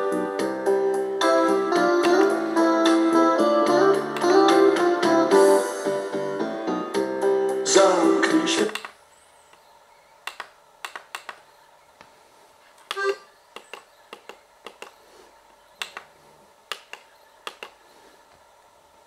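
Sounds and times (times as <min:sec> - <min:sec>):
plastic buttons clicking: 0:08.6 - 0:09.6, 0:10.2 - 0:11.5, 0:12.8 - 0:15.0, 0:15.8 - 0:16.1, 0:16.7 - 0:17.8.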